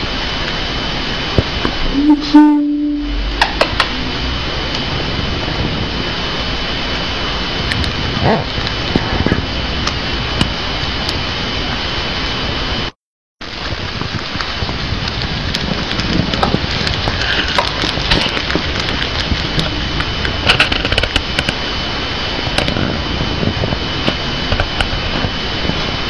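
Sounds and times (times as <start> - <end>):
faint high whine: 0.0 - 15.0
steady rushing hiss: 0.0 - 26.0.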